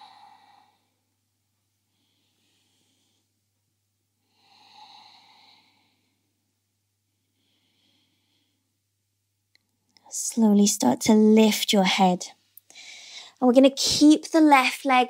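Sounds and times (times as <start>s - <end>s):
woman breathing softly: 0.0s - 1.2s, 1.8s - 3.5s, 4.2s - 8.9s, 12.7s - 13.4s.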